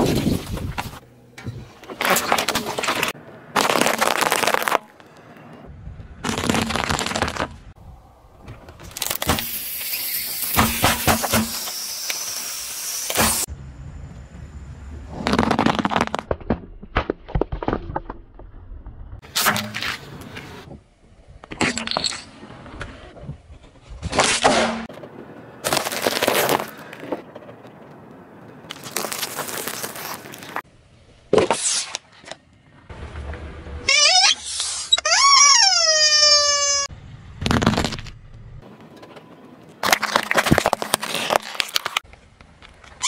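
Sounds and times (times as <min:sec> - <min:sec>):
tyre crushing brittle objects: 0:02.0 - 0:04.9, 0:25.6 - 0:27.0, 0:28.7 - 0:30.6, 0:39.8 - 0:42.0
plastic tube cracking and crunching: 0:03.6 - 0:04.9, 0:06.2 - 0:07.6, 0:15.2 - 0:18.5, 0:37.4 - 0:38.2, 0:39.8 - 0:42.1.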